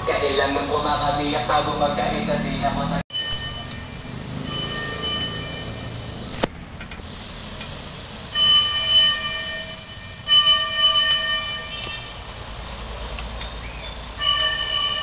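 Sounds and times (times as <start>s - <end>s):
street noise: 0.0s - 15.0s
fire truck horn blaring: 2.4s - 6.3s, 8.3s - 12.4s, 14.2s - 15.0s.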